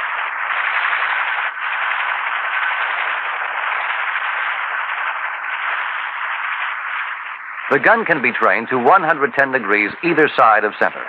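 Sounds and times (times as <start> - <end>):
helicopter rushing noise: 0.0 - 11.0.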